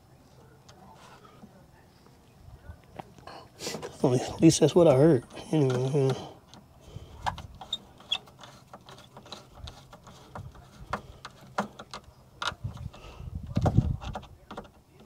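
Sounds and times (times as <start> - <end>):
clicks and rattles of wiring: 5.2 - 15.0.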